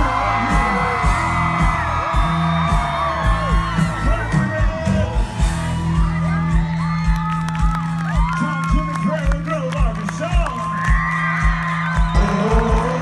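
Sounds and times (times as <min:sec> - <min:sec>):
crowd whooping: 0:00.0 - 0:13.0
live country band playing: 0:00.0 - 0:13.0
person singing: 0:12.2 - 0:13.0.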